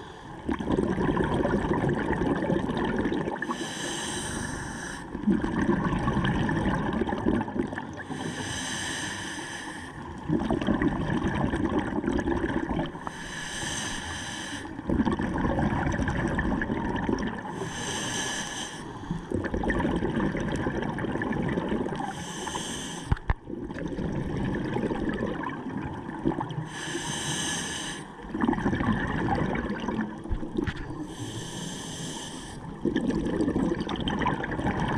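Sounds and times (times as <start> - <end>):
bubbling exhale: 0.0 - 25.6
regulator inhale hiss: 3.4 - 5.1, 8.1 - 10.0, 13.0 - 14.8, 17.5 - 19.2, 22.1 - 23.3, 26.7 - 28.2, 31.0 - 32.8.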